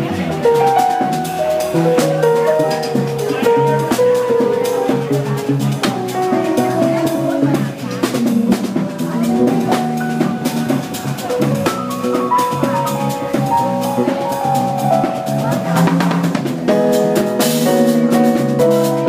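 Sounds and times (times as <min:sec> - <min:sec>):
drum kit with cymbal: 0:00.0 - 0:19.0
electric bass: 0:00.0 - 0:19.0
electric keyboard: 0:00.0 - 0:19.0.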